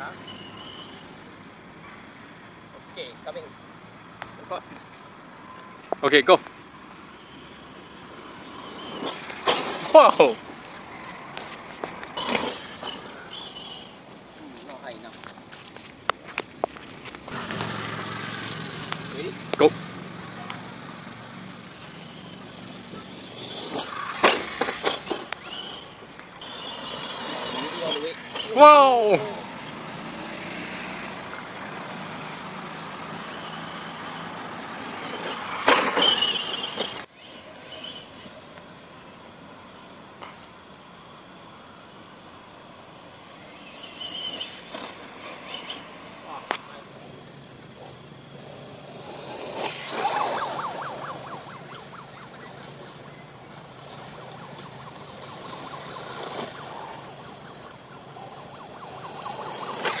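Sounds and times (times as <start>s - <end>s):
rc truck clatter and whine: 0.0s - 15.5s, 16.1s - 60.0s
steady hiss: 36.6s - 50.0s.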